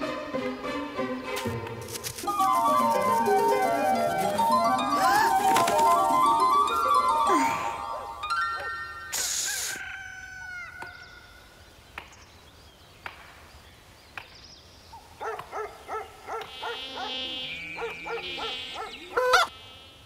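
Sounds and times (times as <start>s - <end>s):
cartoon insect buzzing: 9.1s - 9.8s, 16.5s - 20.0s
short pitched cartoon calls: 9.1s - 10.0s, 16.5s - 20.0s.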